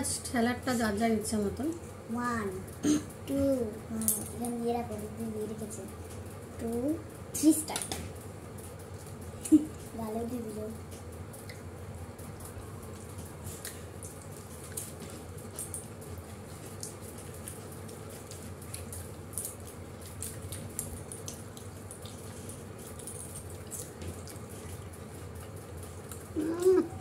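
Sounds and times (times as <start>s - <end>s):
steady background hum: 0.0s - 27.0s
chewing: 10.8s - 27.0s.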